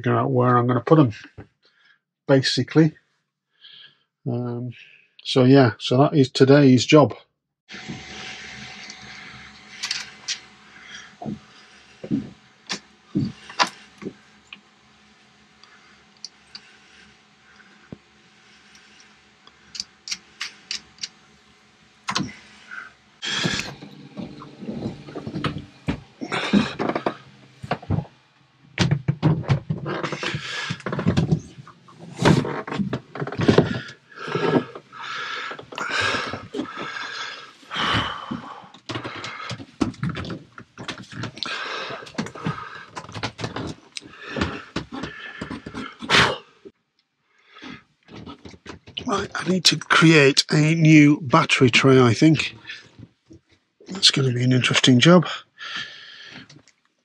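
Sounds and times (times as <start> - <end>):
metal and cables rattling: 23.2 - 46.0.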